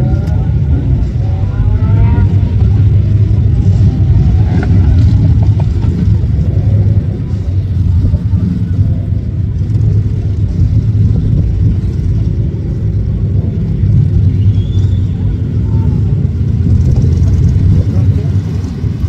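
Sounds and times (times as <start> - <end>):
motorcycle engines running: 0.0 - 19.0.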